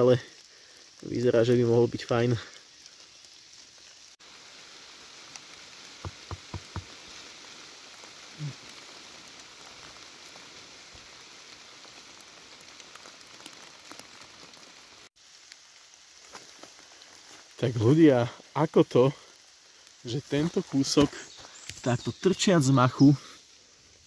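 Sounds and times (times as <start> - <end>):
steady rain: 0.0 - 24.0
dull thump: 6.0 - 6.9
soft knocks: 6.0 - 6.9.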